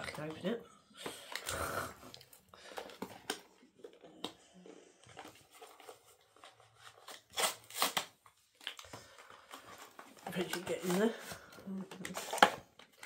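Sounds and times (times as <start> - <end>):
plastic wrap crinkling and tearing: 5.1 - 13.0.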